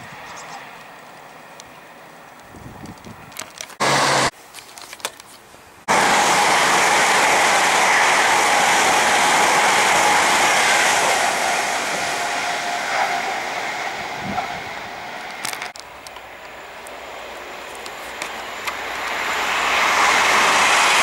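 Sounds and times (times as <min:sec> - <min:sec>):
train passing at speed: 0:03.8 - 0:04.3, 0:05.8 - 0:21.0.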